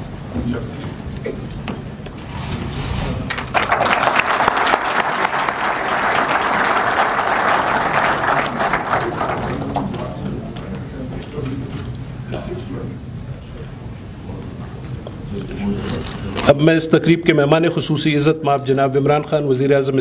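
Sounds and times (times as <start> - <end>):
audience applauding: 3.2 - 10.2.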